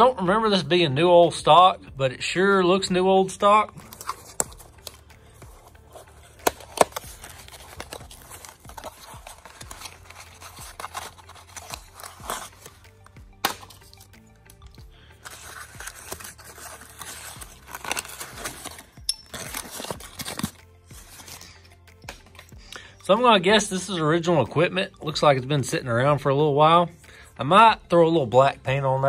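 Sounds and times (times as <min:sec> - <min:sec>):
quiet background music: 0:00.0 - 0:29.0
paper crinkling: 0:03.7 - 0:22.5
cardboard box opening: 0:03.9 - 0:12.8, 0:15.2 - 0:21.4.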